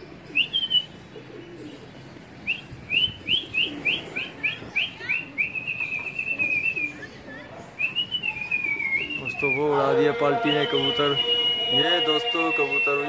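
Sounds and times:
high whistled chirps: 7.8 - 13.0.

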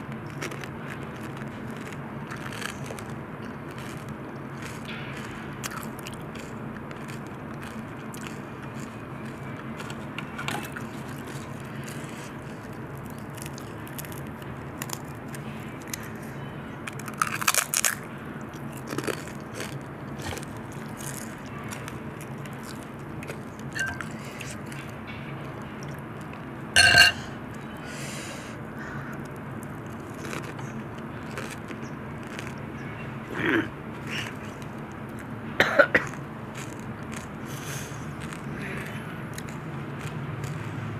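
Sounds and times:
crunching and chewing: 0.0 - 40.9
low background hum: 0.0 - 40.9
crisp shell cracking: 16.9 - 18.0.

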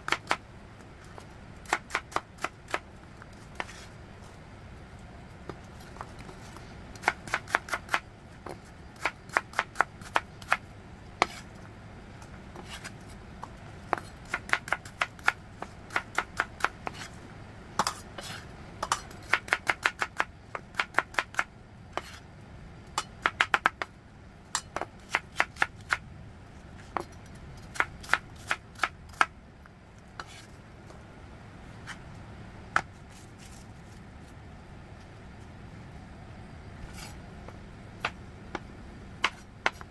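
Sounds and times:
knife dicing on wooden board: 3.6 - 3.9, 11.2 - 11.4, 13.9 - 17.1, 17.8 - 22.2, 38.0 - 39.9.

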